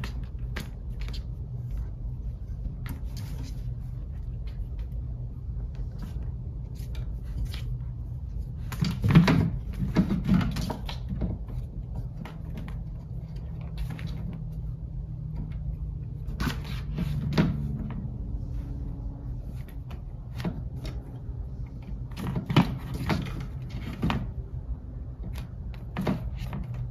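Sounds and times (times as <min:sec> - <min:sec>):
knocks and scrabbling: 0:05.7 - 0:14.6.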